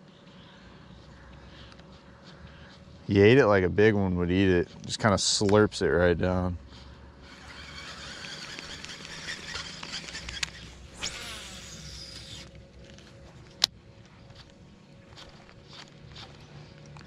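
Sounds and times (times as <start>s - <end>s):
fishing reel winding whir: 7.2s - 13.0s
reel spool spinning: 7.2s - 13.1s.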